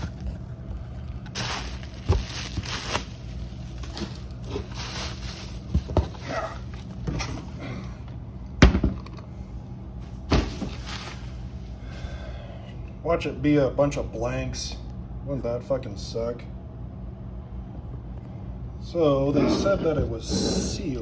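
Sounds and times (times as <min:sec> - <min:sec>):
bubble wrap rustling and crackling: 0:00.0 - 0:07.0.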